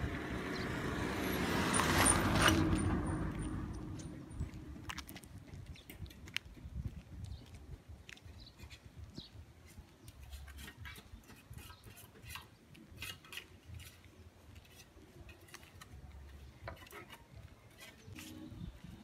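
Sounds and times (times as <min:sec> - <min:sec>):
sandal footsteps on pavement: 0:01.7 - 0:11.2.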